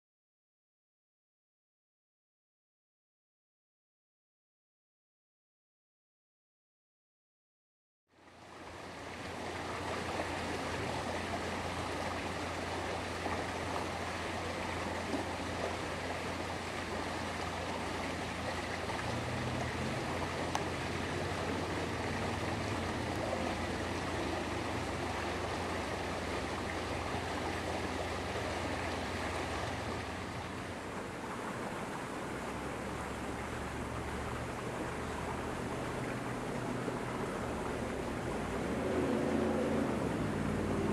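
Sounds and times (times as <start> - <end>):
low steady hum: 8.2 - 40.9.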